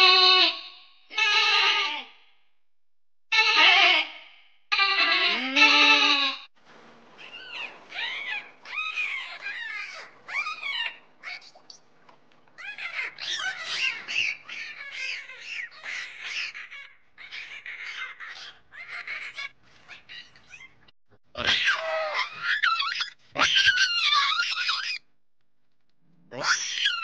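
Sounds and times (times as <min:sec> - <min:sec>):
dolphin squeaks and chirps: 0:07.2 - 0:11.8, 0:12.6 - 0:20.9, 0:21.5 - 0:25.1, 0:26.4 - 0:27.0.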